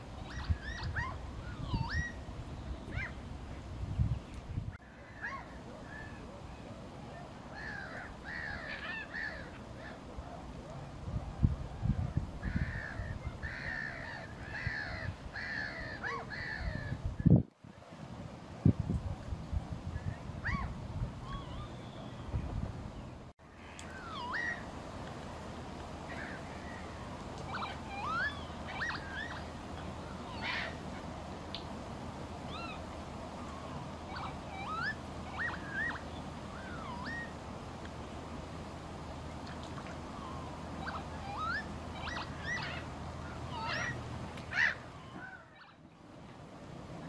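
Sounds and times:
birds whistling calls: 0.2s - 3.2s, 20.4s - 23.1s, 26.1s - 30.8s, 33.4s - 37.4s, 39.8s - 45.8s.

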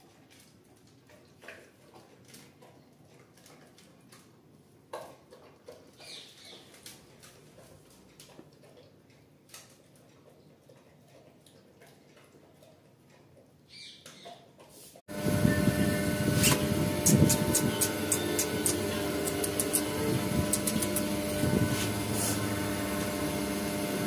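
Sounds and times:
dog eating from metal bowl: 0.0s - 13.5s.

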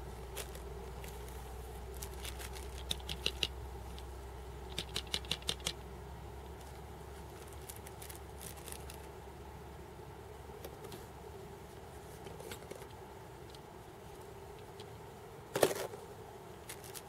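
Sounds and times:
steady low hum: 0.0s - 17.0s
sharp clicks and crinkles: 0.3s - 4.1s, 4.7s - 5.8s, 6.5s - 9.2s, 16.6s - 17.0s.

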